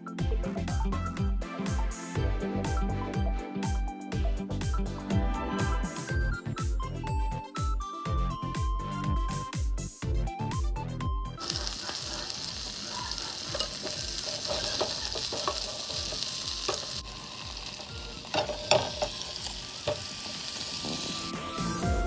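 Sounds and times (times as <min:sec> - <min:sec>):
food sizzling in hot oil: 0:11.4 - 0:22.0.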